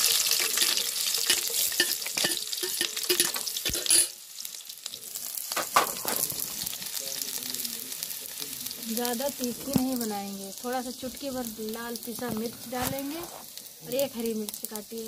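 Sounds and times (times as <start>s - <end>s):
onion sizzling in hot oil: 0.0s - 15.0s
steel spoon clinking on plate: 0.4s - 4.2s.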